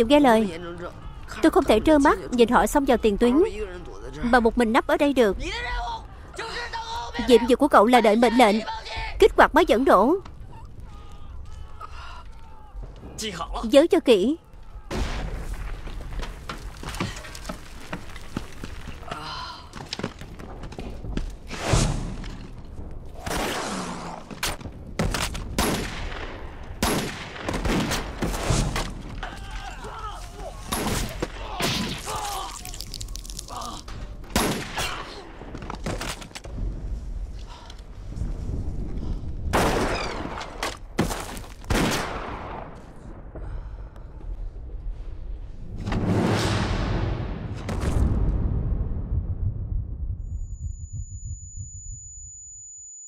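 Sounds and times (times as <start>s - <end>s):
gunfire and blasts: 23.1s - 29.2s, 39.4s - 43.5s
low rumble: 43.1s - 52.4s
loud explosion: 45.8s - 50.8s.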